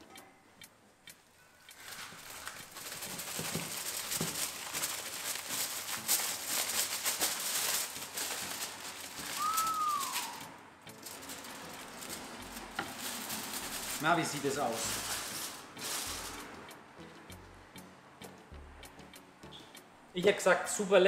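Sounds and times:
aluminium foil crinkling: 0:01.6 - 0:16.6
short falling whistle: 0:09.4 - 0:10.6.

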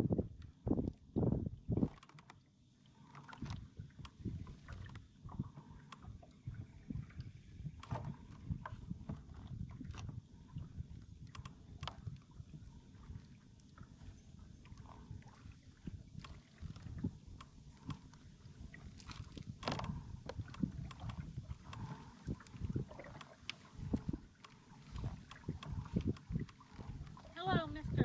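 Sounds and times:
knocks and clicks from boat: 0:00.0 - 0:28.0
water lapping against boat hull: 0:00.0 - 0:28.0.

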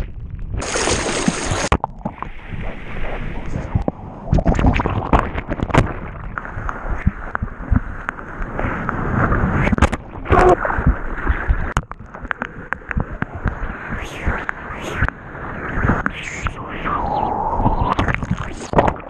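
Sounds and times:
seawater sloshing and splashing: 0:00.6 - 0:07.3
water tapping on camera: 0:10.8 - 0:13.6.

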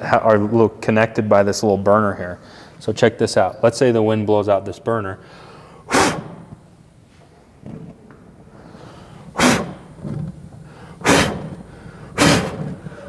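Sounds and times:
person blowing sharp puffs: 0:05.4 - 0:06.7, 0:08.5 - 0:13.0.

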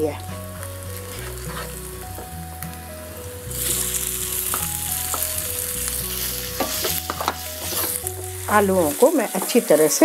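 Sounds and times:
hot oil sizzling in a frying pan: 0:00.0 - 0:10.0
soft background music: 0:00.0 - 0:10.0.

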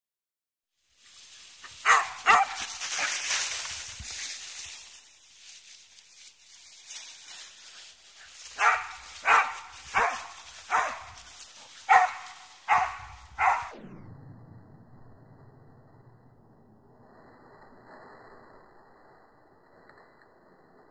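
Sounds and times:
dog barking: 0:01.8 - 0:03.1, 0:08.6 - 0:11.2, 0:11.9 - 0:13.8.

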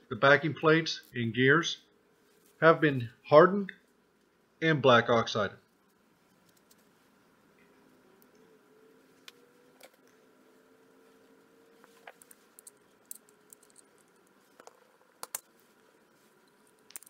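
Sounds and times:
low steady hum: 0:00.0 - 0:17.0
small metal parts clicking: 0:11.9 - 0:15.5, 0:16.8 - 0:17.0.

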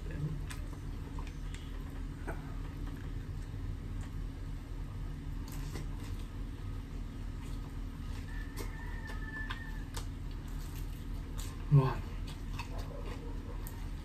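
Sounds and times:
crunching bites of fried chicken: 0:05.3 - 0:06.5, 0:07.3 - 0:14.0
distant rooster crowing: 0:08.0 - 0:10.2.

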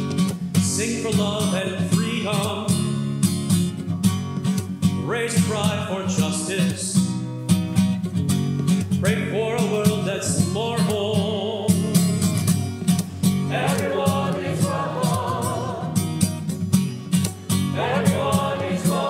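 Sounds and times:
strummed acoustic guitar: 0:00.0 - 0:19.0
choir and congregation singing: 0:13.5 - 0:16.3, 0:17.7 - 0:19.0.

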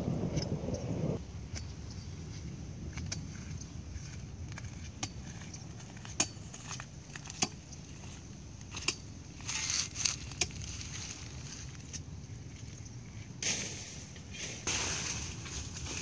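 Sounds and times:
wind rumble on microphone: 0:00.0 - 0:16.0
footsteps crunching on dry dirt: 0:02.2 - 0:12.8, 0:14.6 - 0:16.0.

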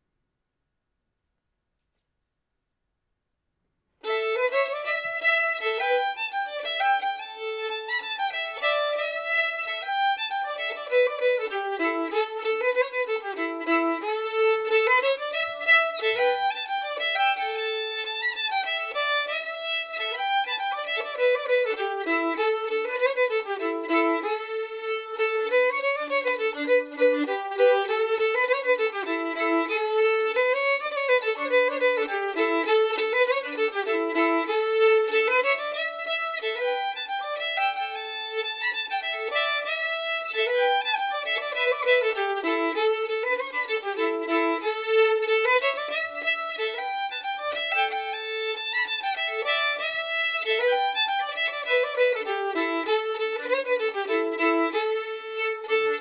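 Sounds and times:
fiddle playing lively tune: 0:04.0 - 0:56.0.

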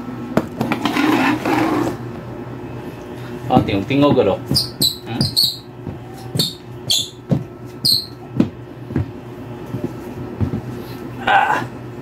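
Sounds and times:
sneakers squeaking on wooden floor: 0:03.5 - 0:10.6
soft footfalls: 0:03.5 - 0:10.8.

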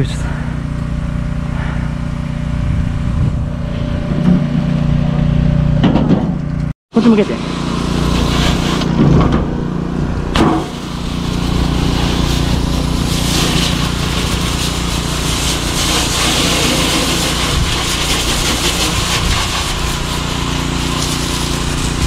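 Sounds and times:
pressure washer spraying: 0:07.0 - 0:09.1, 0:10.4 - 0:22.0.

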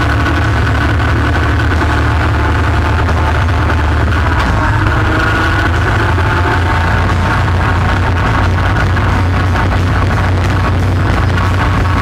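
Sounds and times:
quad bike engine running: 0:00.0 - 0:12.0.

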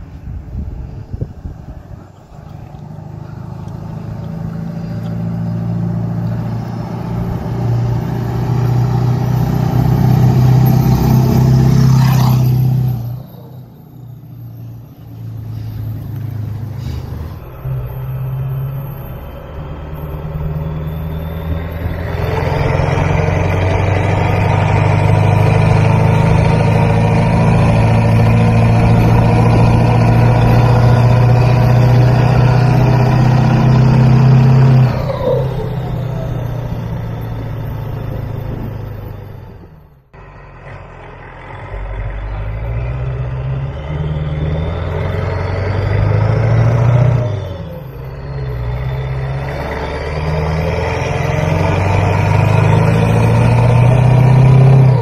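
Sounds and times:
diesel truck engine under load: 0:00.0 - 0:55.0
high turbo whistle: 0:07.2 - 0:39.3.

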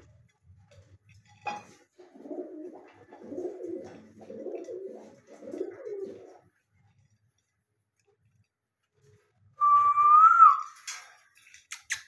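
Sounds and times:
pigeons cooing: 0:01.9 - 0:06.5.

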